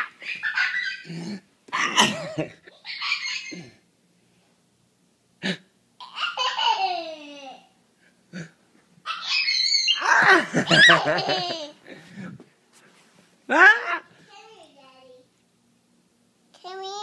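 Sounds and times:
young child laughing: 0.0s - 3.8s, 6.0s - 7.7s, 9.1s - 11.8s.

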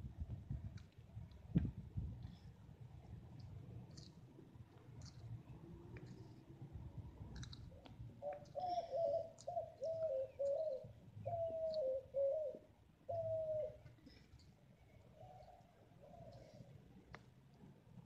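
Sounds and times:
tortoise biting lettuce clicks: 3.0s - 8.6s
bird hooting: 8.2s - 13.9s.

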